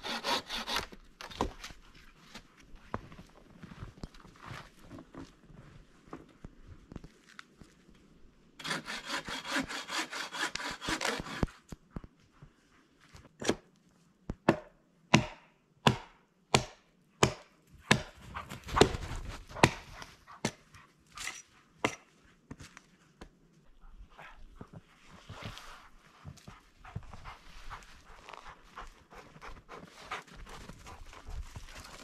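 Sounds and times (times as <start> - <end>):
hand saw cutting wood: 0.0 - 1.5, 8.6 - 11.6, 18.8 - 20.6
sharp strikes on wood: 14.4 - 18.2, 18.8 - 20.6.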